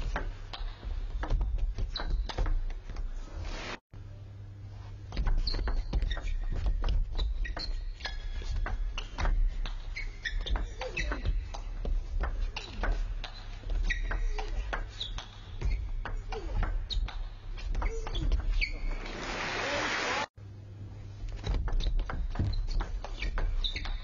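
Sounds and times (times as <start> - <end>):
shoe squeaks on floor: 5.2 - 11.7, 12.4 - 19.2, 21.8 - 24.0.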